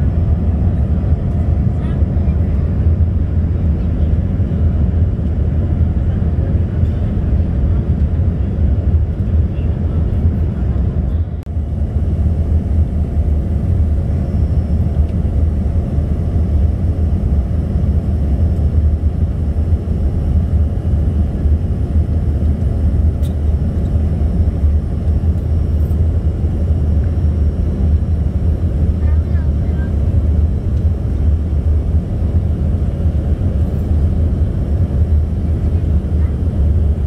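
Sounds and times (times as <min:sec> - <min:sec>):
jet cabin engine rumble: 0:00.0 - 0:37.0.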